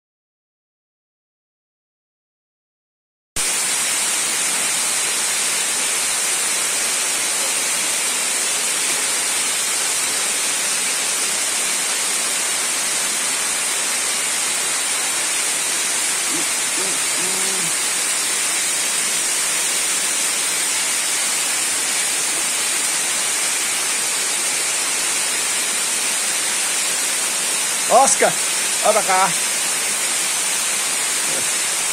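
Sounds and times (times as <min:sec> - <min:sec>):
waterfall rushing: 0:03.4 - 0:31.9
faint voice: 0:16.2 - 0:17.9, 0:27.9 - 0:29.4.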